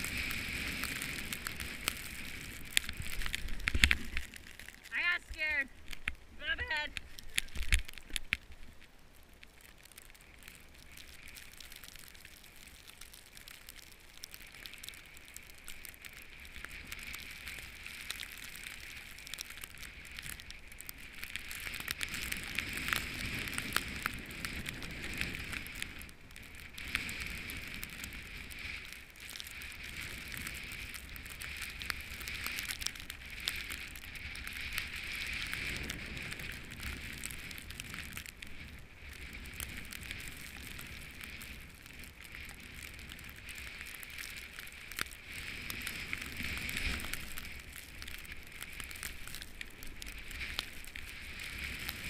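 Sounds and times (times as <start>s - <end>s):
snowboard scraping snow: 0.0s - 4.6s, 26.8s - 32.6s, 33.2s - 49.2s, 49.8s - 52.0s.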